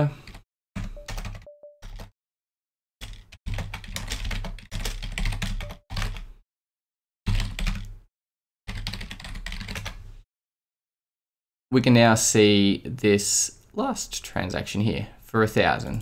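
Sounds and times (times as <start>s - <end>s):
computer keyboard typing: 0.2s - 2.1s, 3.0s - 6.3s, 7.3s - 8.0s, 8.7s - 10.0s.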